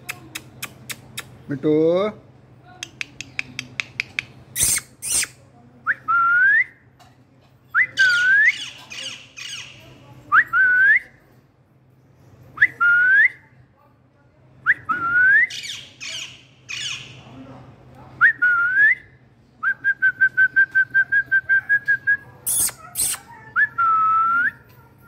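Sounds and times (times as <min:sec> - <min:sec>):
parrot screeching: 0:04.6 - 0:05.4, 0:15.5 - 0:17.2, 0:22.4 - 0:23.3
raspy parrot squawking: 0:04.6 - 0:05.4, 0:15.6 - 0:17.2, 0:22.5 - 0:23.3.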